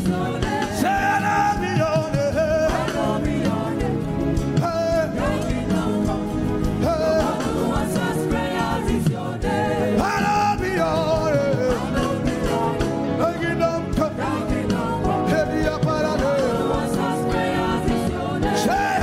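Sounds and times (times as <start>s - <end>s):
instrumental accompaniment with beat: 0.0s - 19.0s
voices singing gospel: 0.0s - 19.0s.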